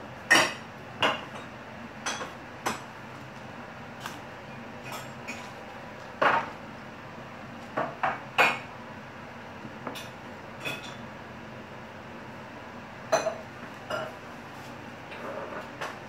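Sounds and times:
glass clinking on countertop: 13.1 - 14.1.

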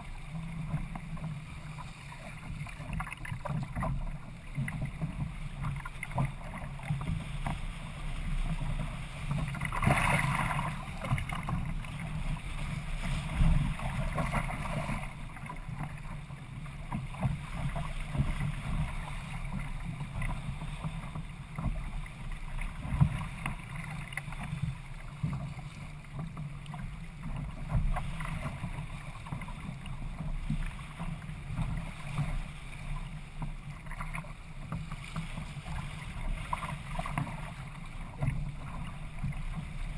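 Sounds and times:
water slapping against kayak hull: 0.0 - 39.9
wind rumble on microphone: 0.0 - 39.9.

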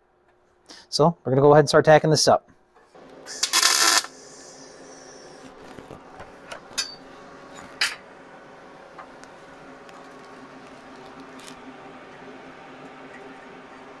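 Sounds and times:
faint steady hum: 0.0 - 14.0
welding arc crackling: 3.2 - 4.6.

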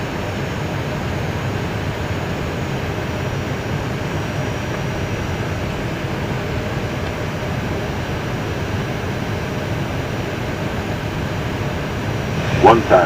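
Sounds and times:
cockpit airflow and engines rushing: 0.0 - 13.0
faint high whine: 11.2 - 13.0.

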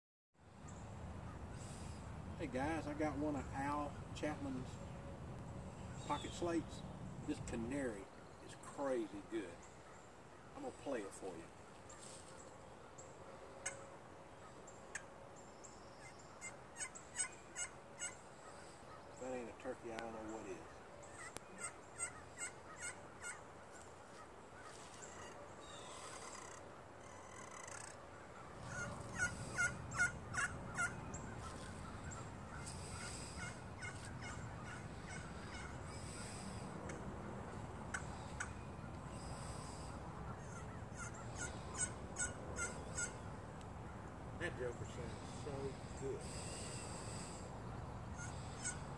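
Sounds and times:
slate turkey call notes: 13.6 - 13.8, 16.0 - 43.3, 48.1 - 48.9
turkey call yelps: 16.0 - 19.0, 21.1 - 25.4, 26.0 - 36.5, 39.7 - 43.2, 48.2 - 48.9.

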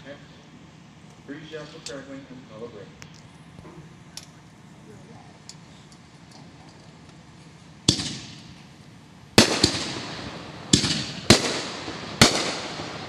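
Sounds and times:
firework bursts with crackling: 7.8 - 8.7, 9.3 - 13.0.

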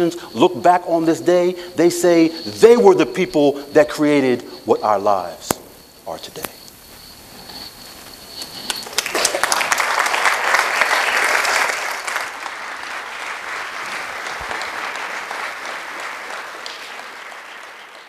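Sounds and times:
audience applauding: 8.8 - 18.0.

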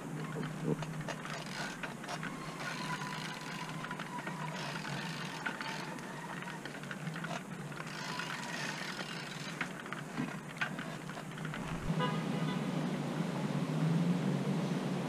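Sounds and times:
bicycle rattling and clicking: 0.0 - 11.9.

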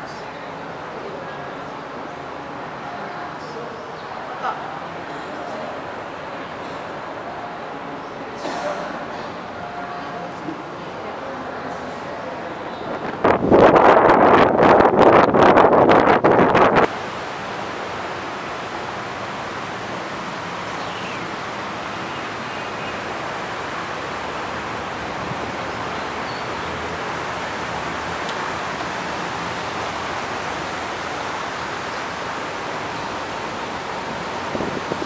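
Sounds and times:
fountain water rushing: 16.6 - 35.0.

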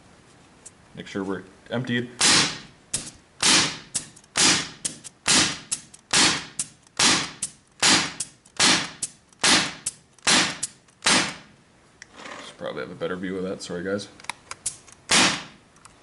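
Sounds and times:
air rifle shots with hiss: 2.2 - 11.5, 14.6 - 15.6.

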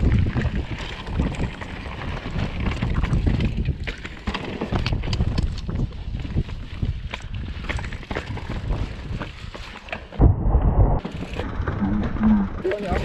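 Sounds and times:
bike rattling: 0.0 - 10.2, 11.0 - 13.0
bike tyres crunching over stone: 0.0 - 10.2
steady low rumble: 10.2 - 12.6.

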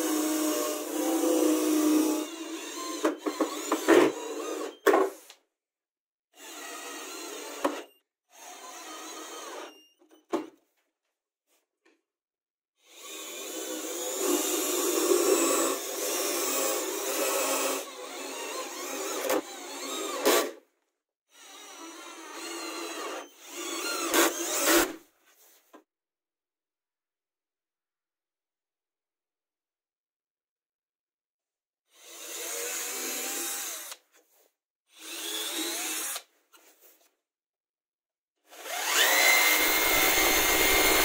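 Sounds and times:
cordless drill running: 0.0 - 4.8, 6.4 - 9.8, 12.8 - 20.6, 21.3 - 25.0, 31.9 - 34.0, 34.9 - 36.3, 38.5 - 41.0.

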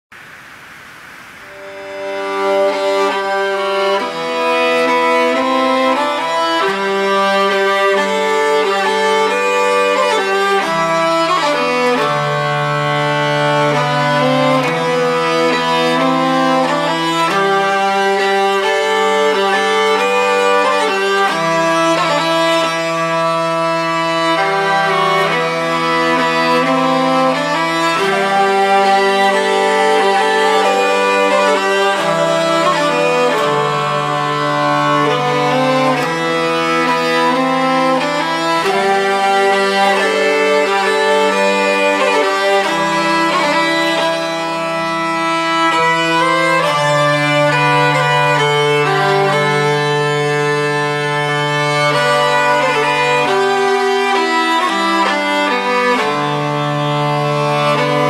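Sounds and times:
held lower string notes: 0.1 - 58.0
violin melody: 1.5 - 58.0.

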